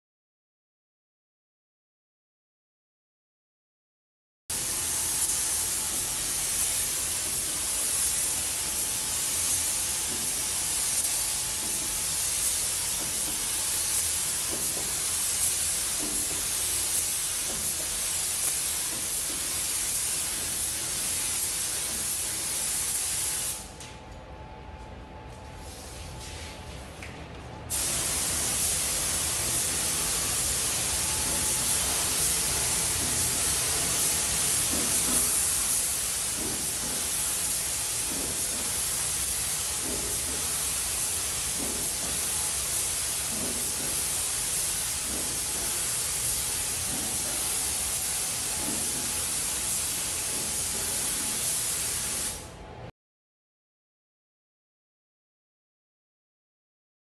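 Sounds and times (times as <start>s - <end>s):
spray gun hissing: 4.6s - 23.7s, 27.7s - 52.5s.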